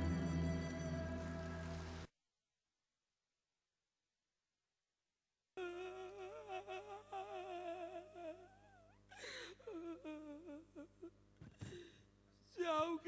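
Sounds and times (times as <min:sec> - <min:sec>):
man sobbing cries: 0:05.6 - 0:11.1.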